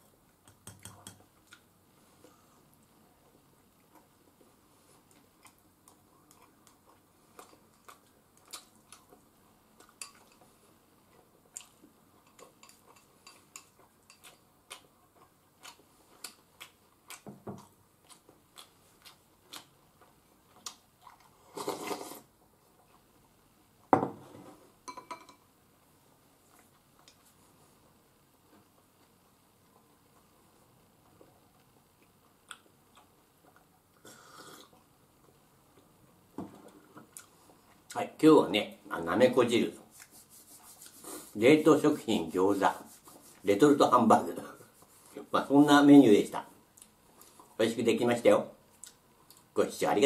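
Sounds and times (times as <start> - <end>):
chewing: 5.0 - 10.5, 11.1 - 22.1.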